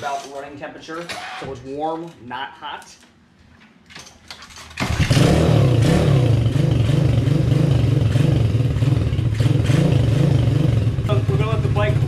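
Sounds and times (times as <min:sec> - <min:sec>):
motorbike engine starting and revving: 0:04.8 - 0:12.0.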